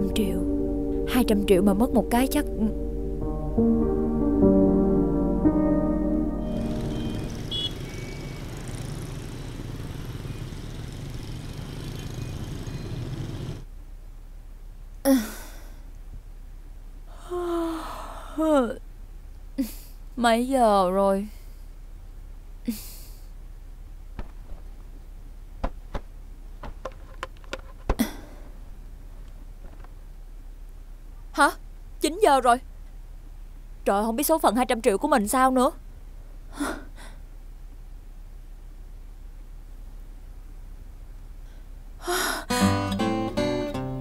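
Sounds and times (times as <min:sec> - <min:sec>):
traffic hum: 0:06.2 - 0:42.3
short high beep: 0:06.6 - 0:08.4
bedding rustling: 0:24.1 - 0:30.0.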